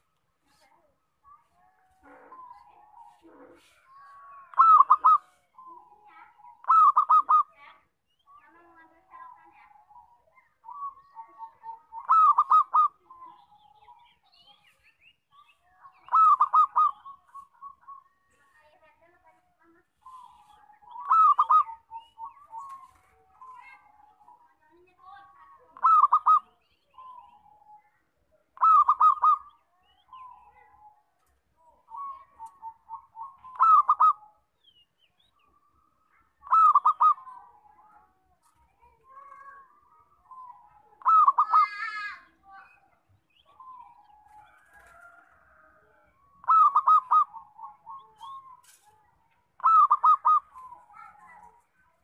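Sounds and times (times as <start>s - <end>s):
dove cooing: 1.8s - 7.5s, 9.7s - 14.1s, 16.0s - 18.3s, 20.0s - 24.3s, 25.7s - 27.8s, 28.6s - 31.3s, 31.9s - 34.4s, 36.4s - 38.1s, 39.0s - 42.8s, 43.4s - 48.9s, 49.6s - 51.7s.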